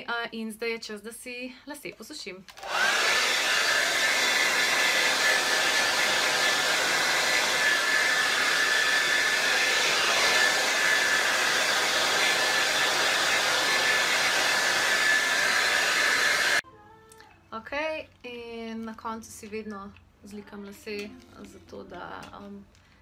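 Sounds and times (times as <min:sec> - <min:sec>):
hair dryer blowing: 0:02.5 - 0:16.6.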